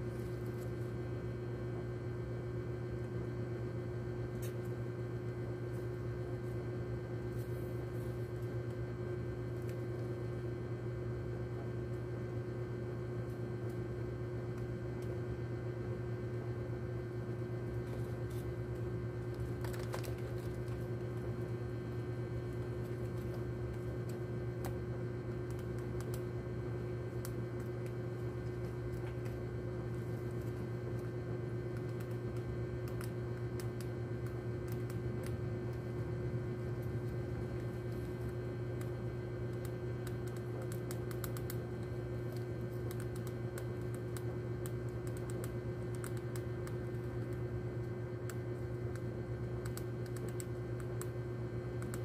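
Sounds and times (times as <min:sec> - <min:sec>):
low hum: 0:00.0 - 0:52.0.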